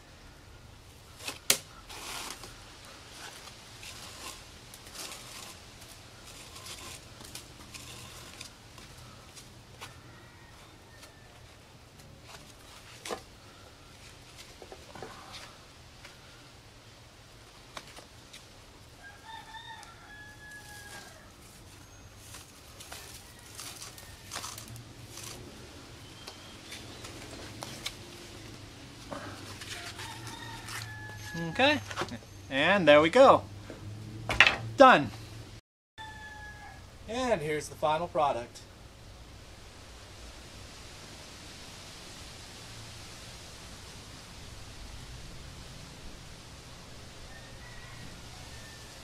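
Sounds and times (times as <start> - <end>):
rope rustling and sliding: 1.1 - 9.9, 26.2 - 32.2
rooster crowing: 9.8 - 11.6, 19.0 - 21.4, 29.2 - 31.9, 36.0 - 37.0, 47.2 - 49.0
rope rustling and swishing: 26.6 - 30.9.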